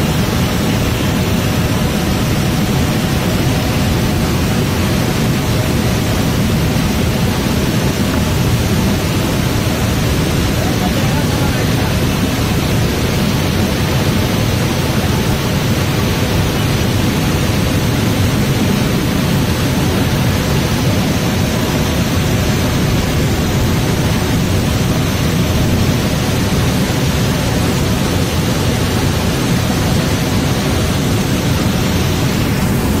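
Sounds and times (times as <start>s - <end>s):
water rushing over rocks: 0.0s - 33.0s.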